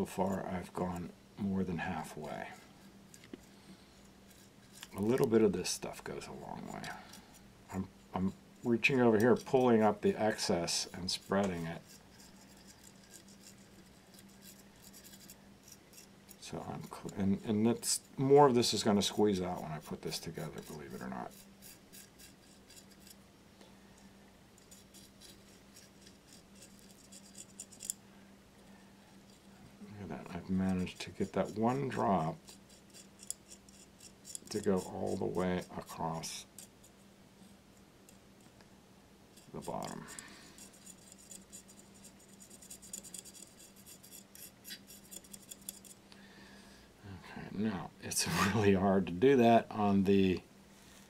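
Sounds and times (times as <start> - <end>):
faint low hum: 0.0 - 51.0
rod scraping porcelain edge: 4.3 - 5.3, 8.7 - 23.2, 24.6 - 28.0, 30.4 - 35.9, 39.4 - 46.0.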